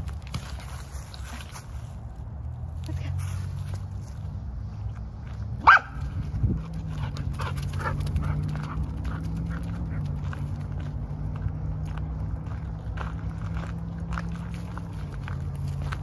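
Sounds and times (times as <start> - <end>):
footsteps on leafy dirt trail: 0.0 - 16.0
dog barking: 5.6 - 6.1.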